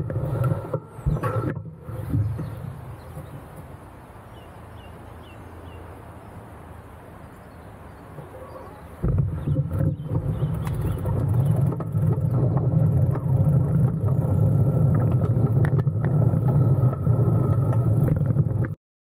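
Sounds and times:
bicycle tyre noise: 0.0 - 3.8, 9.0 - 18.8
wind buffeting: 8.1 - 18.8.

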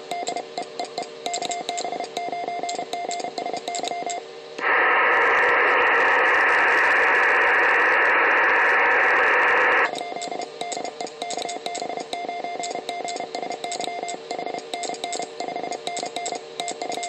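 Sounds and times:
morse code tones: 0.0 - 4.2, 9.9 - 17.0
receiver noise hiss: 0.0 - 17.0.

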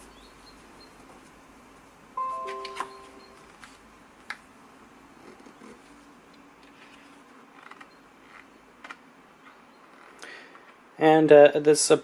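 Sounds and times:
glossy pages being turned: 6.7 - 8.5.

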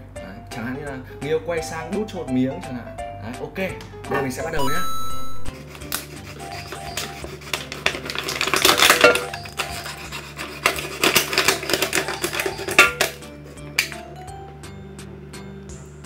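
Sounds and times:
background music: 0.0 - 16.0
plastic bottle crackling: 6.9 - 9.9, 10.6 - 13.2.

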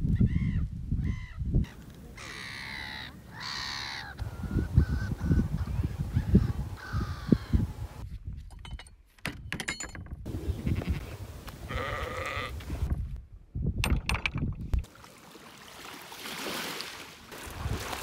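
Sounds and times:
wind rumbling on microphone: 0.0 - 2.3, 4.2 - 8.9, 10.0 - 14.9, 17.3 - 18.0
sheep bleating: 11.7 - 12.6
water washing over mudflats: 14.8 - 18.0.

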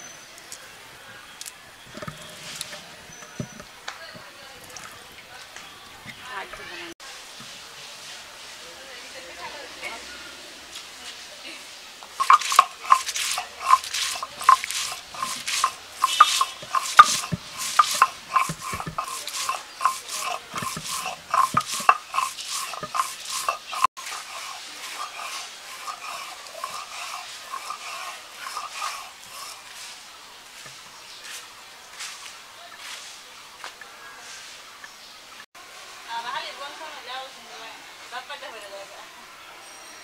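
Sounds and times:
stone roller grinding on stone slab: 1.9 - 4.3, 12.2 - 30.0.

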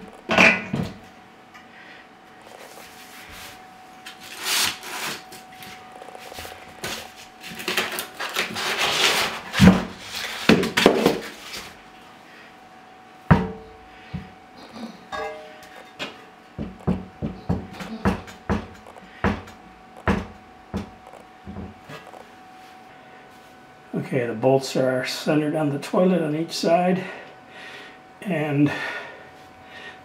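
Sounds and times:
cardboard scraping on tile floor: 4.2 - 5.4, 6.2 - 11.7
sharp knocks: 16.6 - 21.7.

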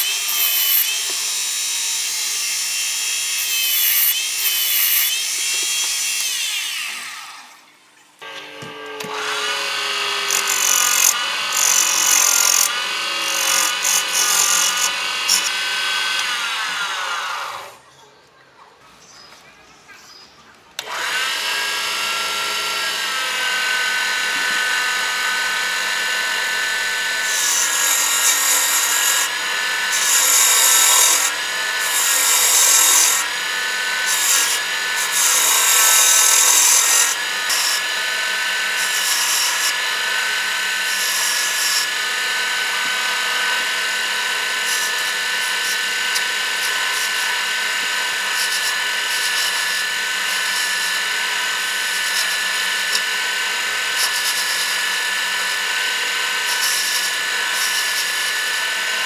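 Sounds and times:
turning tool cutting wood: 0.0 - 7.5, 8.2 - 17.8, 20.8 - 59.0
wood lathe motor whine: 8.2 - 17.8, 20.8 - 59.0.

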